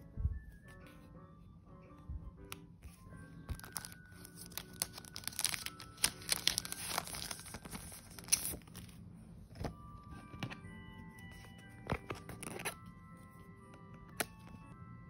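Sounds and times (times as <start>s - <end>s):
plastic sticker sheet crinkling: 3.4s - 9.0s.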